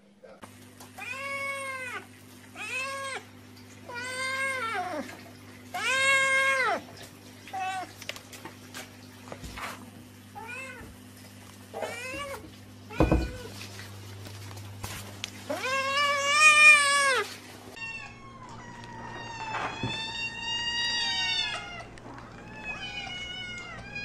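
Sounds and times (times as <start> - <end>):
cat meowing: 1.0 - 3.2, 5.7 - 6.8, 11.7 - 13.5, 15.5 - 24.0.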